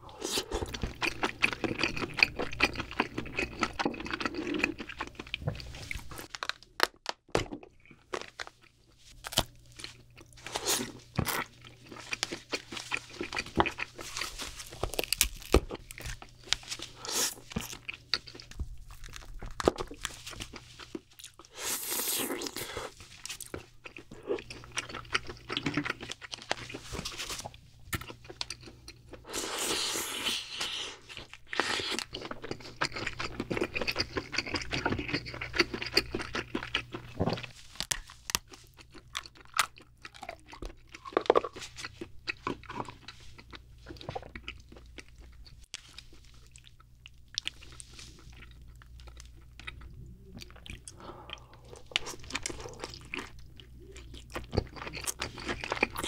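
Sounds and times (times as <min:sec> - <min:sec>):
wet chewing: 0:00.2 - 0:06.4, 0:09.3 - 0:56.0.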